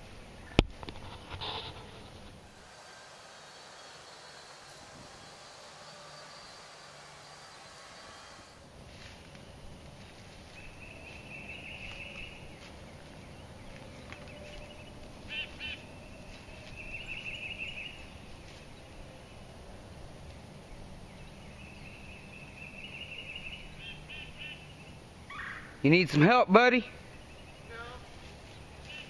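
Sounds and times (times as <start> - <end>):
sharp bird calls: 10.5 - 18.2, 21.3 - 25.9, 26.9 - 29.0
bird high trills: 14.3 - 18.2.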